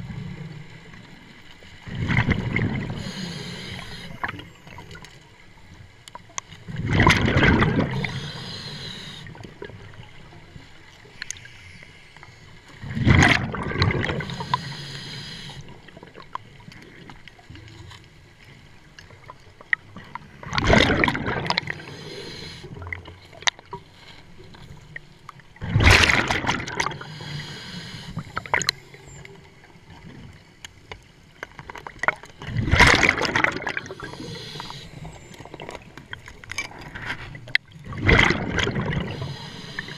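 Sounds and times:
exhaled bubbles underwater: 0:00.0 - 0:05.2, 0:06.2 - 0:11.4, 0:12.8 - 0:17.8, 0:19.2 - 0:23.8, 0:25.6 - 0:30.4, 0:31.8 - 0:36.8, 0:37.4 - 0:39.9
regulator hiss: 0:03.0 - 0:04.3, 0:08.0 - 0:09.3, 0:14.3 - 0:15.6, 0:21.8 - 0:22.7, 0:27.0 - 0:28.2, 0:33.9 - 0:35.0, 0:39.2 - 0:39.9.

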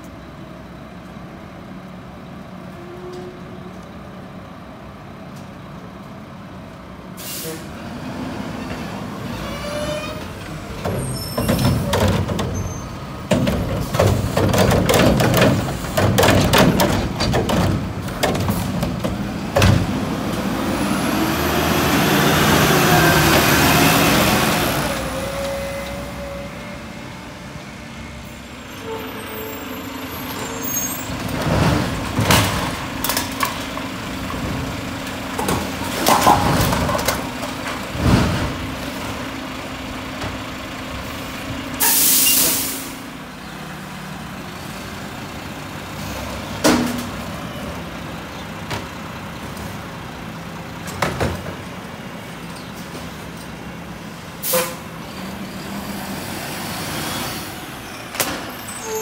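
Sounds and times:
garbage truck engines running: 0:00.1 - 0:59.0
air brake hiss with whine: 0:07.2 - 0:07.7, 0:41.8 - 0:43.0, 0:54.4 - 0:54.8
carts clattering and banging: 0:08.7 - 0:21.4, 0:30.6 - 0:39.4, 0:50.7 - 0:53.8
mechanical arm banging cart: 0:10.2 - 0:20.0.

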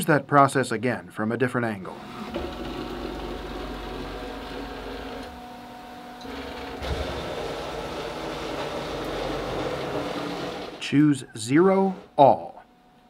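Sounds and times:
cnc router motors whining: 0:01.9 - 0:11.0.

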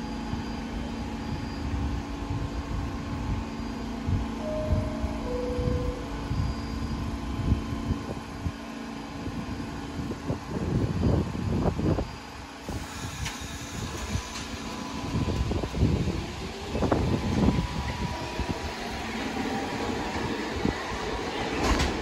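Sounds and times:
train hum and rumble: 0:00.0 - 0:22.0
two-note door chime: 0:04.4 - 0:06.9.

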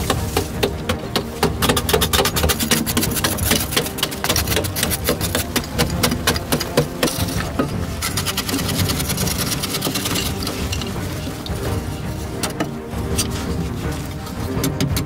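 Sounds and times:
hand tools chopping into earth: 0:00.0 - 0:10.6.

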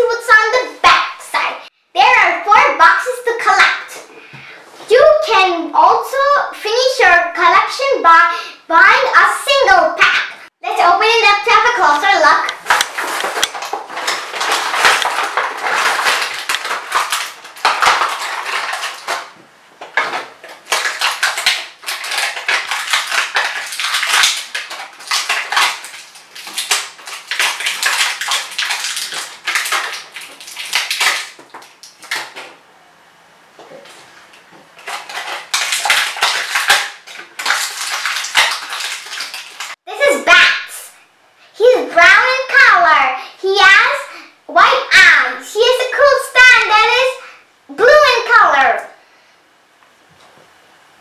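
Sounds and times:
plastic packaging crinkling: 0:11.8 - 0:32.6, 0:33.8 - 0:39.8.

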